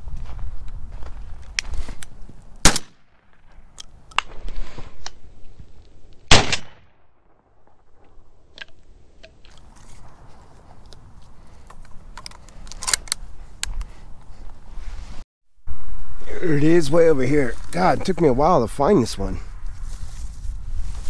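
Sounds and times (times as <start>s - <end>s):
footsteps crunching through dry brush: 0.0s - 2.6s, 3.4s - 5.9s, 9.5s - 12.6s, 13.2s - 15.2s, 17.4s - 21.0s
shotgun shots: 2.6s - 3.3s, 6.3s - 7.6s.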